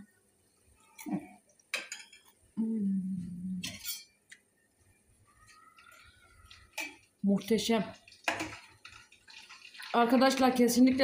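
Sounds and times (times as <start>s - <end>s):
person humming briefly: 2.6s - 3.6s.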